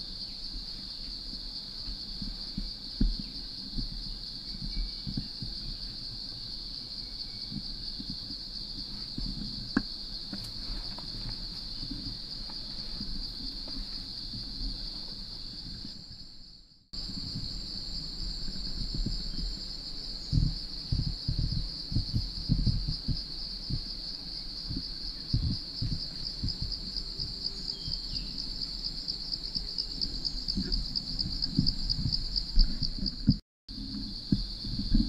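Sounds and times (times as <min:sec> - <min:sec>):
high-pitched insect chorus: 0:00.0 - 0:35.0
footsteps on forest floor: 0:10.3 - 0:15.2.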